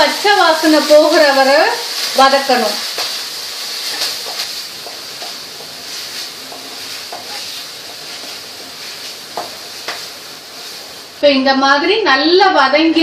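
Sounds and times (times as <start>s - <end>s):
paste sizzling in hot oil: 0.0s - 11.2s
wooden spatula scraping: 0.9s - 11.0s.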